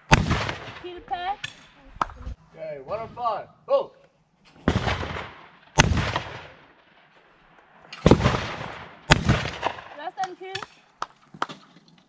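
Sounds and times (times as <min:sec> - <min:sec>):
shotgun shots: 0:00.0 - 0:01.6, 0:04.6 - 0:06.9, 0:08.0 - 0:10.7.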